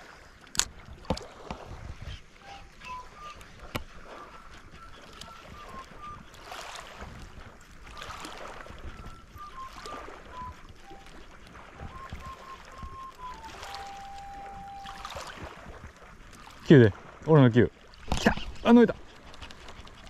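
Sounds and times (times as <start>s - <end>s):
wind noise: 0.0s - 17.2s
waves lapping on pebbles: 0.0s - 20.0s
faint whistle-like melody: 2.0s - 7.2s, 7.8s - 15.7s.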